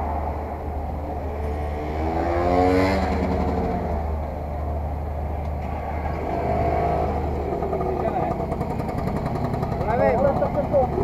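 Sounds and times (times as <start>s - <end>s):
motorcycle engines idling: 3.0s - 11.0s.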